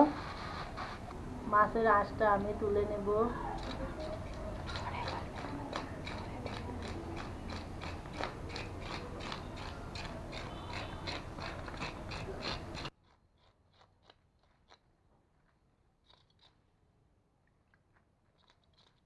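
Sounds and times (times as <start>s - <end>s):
fish scaler scraping scales: 3.4s - 14.8s.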